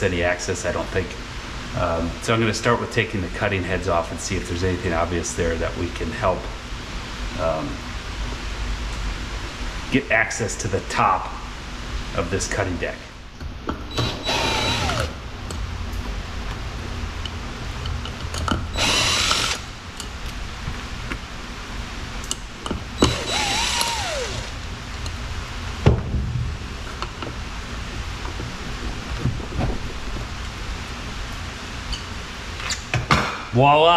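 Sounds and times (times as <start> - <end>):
cordless power driver whining: 13.9 - 15.2, 18.7 - 19.8, 23.0 - 24.7.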